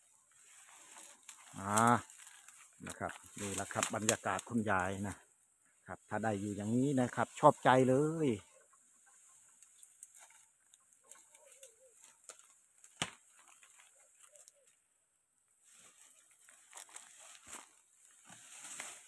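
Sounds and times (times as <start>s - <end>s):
leaves and twigs snapping: 0.7s - 5.2s, 9.5s - 14.8s, 15.8s - 19.0s.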